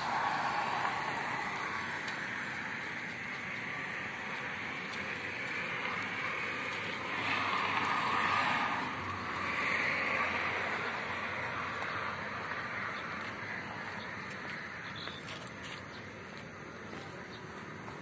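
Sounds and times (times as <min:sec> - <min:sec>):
traffic with tyre hiss: 0:00.0 - 0:18.0.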